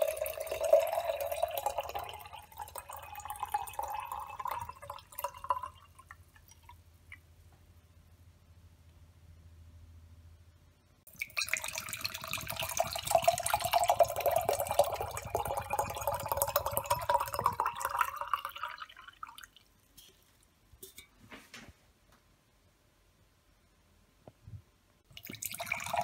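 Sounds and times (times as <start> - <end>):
liquid pouring into glass: 0.0 - 6.8, 11.1 - 19.7, 25.1 - 26.0.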